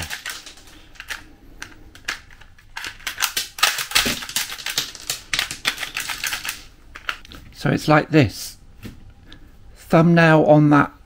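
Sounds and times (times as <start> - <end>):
plastic cartridges clattering: 0.0 - 7.2.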